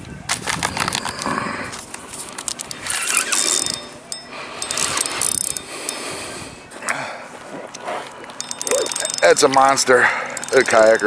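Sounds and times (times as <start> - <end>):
fishing reel clicking and whirring: 2.4 - 6.7, 8.2 - 11.0.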